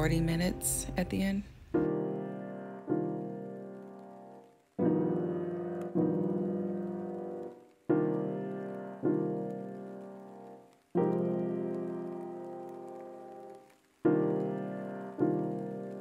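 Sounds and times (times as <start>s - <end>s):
slow piano chords: 0.0s - 16.0s.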